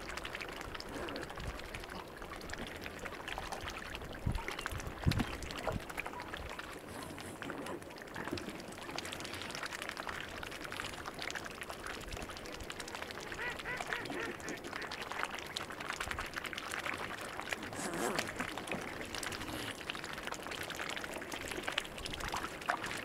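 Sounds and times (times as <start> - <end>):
swans dabbling and splashing: 0.0 - 23.0
swan calls: 13.2 - 15.0.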